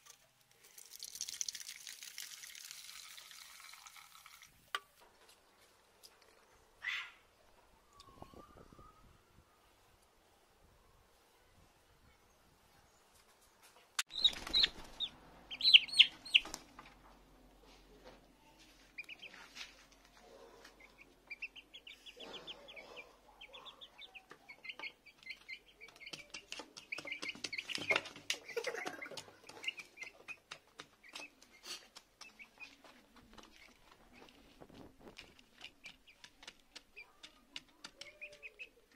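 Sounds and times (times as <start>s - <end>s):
chicks peeping: 14.0s - 16.7s, 18.8s - 19.6s, 20.7s - 32.8s, 35.8s - 38.9s
beaks pecking in plastic dish: 24.1s - 34.4s, 35.1s - 38.9s.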